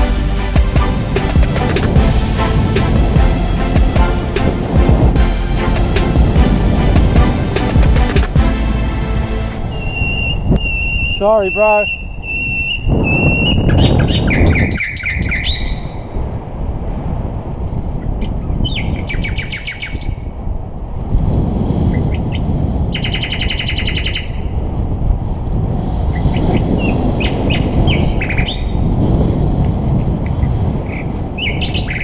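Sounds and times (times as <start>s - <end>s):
wind rushing over microphone: 0.0s - 32.0s
high chirps and fast trills: 9.6s - 15.2s.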